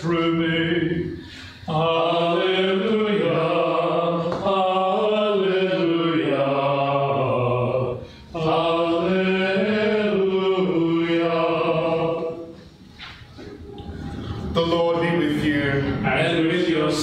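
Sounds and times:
man singing chant: 0:00.0 - 0:12.5
breath: 0:01.2 - 0:01.7, 0:08.0 - 0:08.3.

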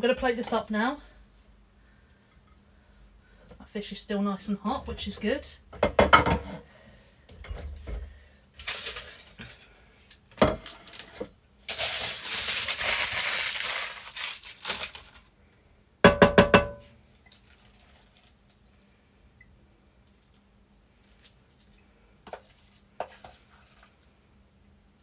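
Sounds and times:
metal knocks on a pan: 0:05.8 - 0:06.4, 0:16.0 - 0:16.9
pots and utensils clattering: 0:05.8 - 0:06.6.

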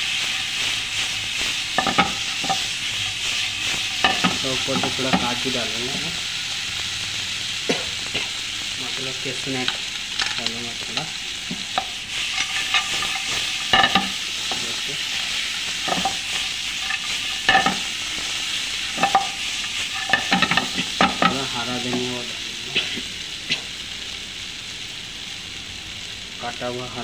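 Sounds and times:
food sizzling in frying pan: 0:00.0 - 0:27.0
wooden spatula scraping pan: 0:01.8 - 0:05.4, 0:11.5 - 0:17.9, 0:18.9 - 0:22.1.

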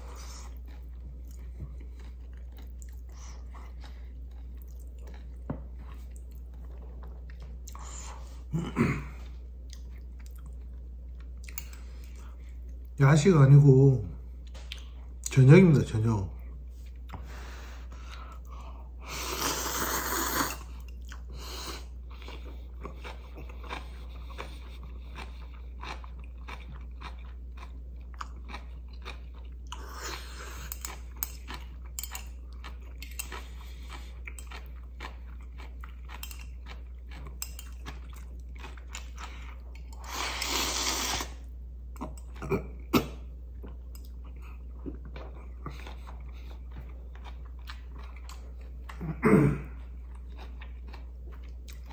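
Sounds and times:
chewing: 0:00.0 - 0:08.2, 0:09.2 - 0:12.9, 0:20.4 - 0:41.3, 0:43.6 - 0:51.9
noodle slurping: 0:40.1 - 0:41.4.

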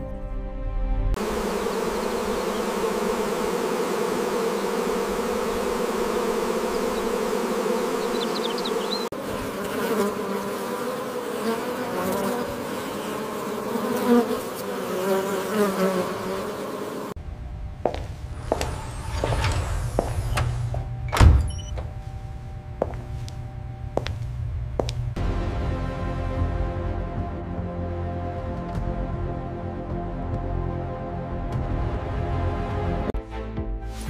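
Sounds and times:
honeybees buzzing: 0:01.2 - 0:21.0.

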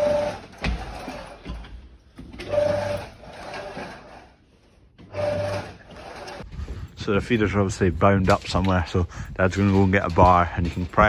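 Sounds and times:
knocks and rattling: 0:00.0 - 0:04.2, 0:05.0 - 0:11.0.

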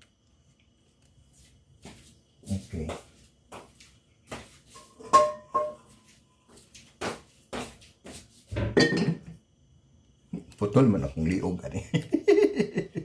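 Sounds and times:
wok clattering: 0:04.8 - 0:05.9
metal pans clanking: 0:04.8 - 0:06.0, 0:08.5 - 0:09.4
struck pans ringing: 0:05.0 - 0:05.9.

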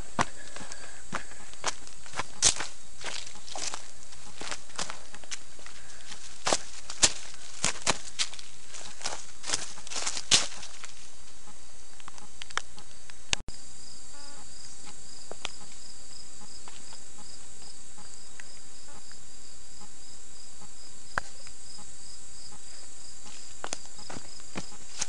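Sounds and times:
insects chirping: 0:00.0 - 0:25.0.

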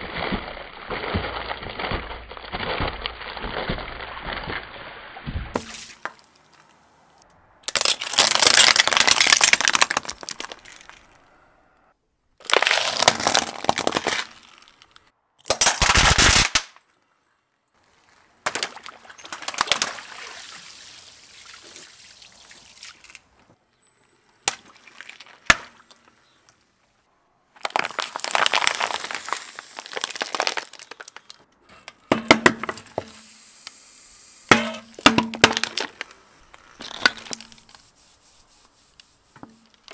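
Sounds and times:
tyre crushing objects: 0:12.4 - 0:14.6.

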